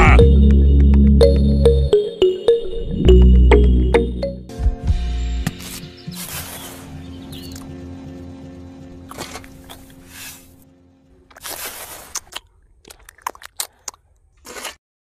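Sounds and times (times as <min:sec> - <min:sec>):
background music held tone: 0:00.0 - 0:11.3
trowel scraping wet mortar: 0:11.3 - 0:12.3.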